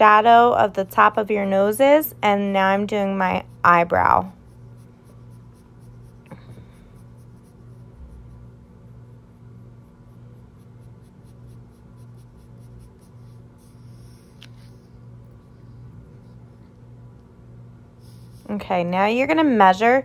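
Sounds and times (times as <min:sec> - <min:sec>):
pencil scratching on paper: 0:02.7 - 0:16.8, 0:18.0 - 0:18.6.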